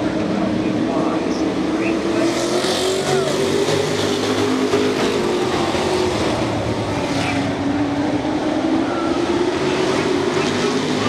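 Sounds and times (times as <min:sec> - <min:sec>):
racing truck engines passing: 0:00.0 - 0:11.0.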